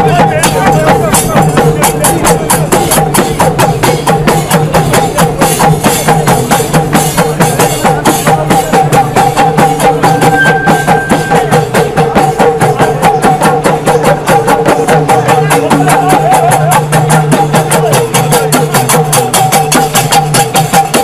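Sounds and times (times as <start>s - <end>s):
fast steady percussion: 0.0s - 21.0s
sustained held tones: 10.0s - 11.8s.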